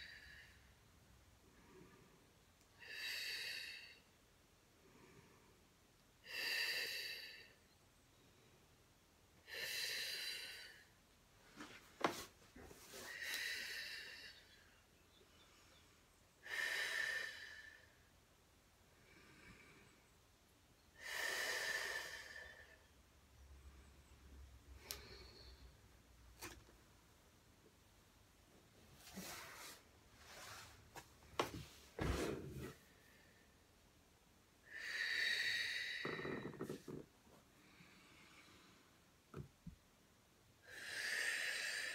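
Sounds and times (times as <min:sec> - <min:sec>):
woman breathing deeply: 0:01.5 - 0:04.2, 0:04.8 - 0:07.6, 0:09.4 - 0:11.0, 0:12.9 - 0:18.2, 0:18.9 - 0:20.2, 0:20.9 - 0:23.0, 0:24.7 - 0:25.9, 0:34.6 - 0:39.2, 0:40.6 - 0:41.9
person breathing deeply: 0:12.9 - 0:14.8, 0:34.6 - 0:39.1.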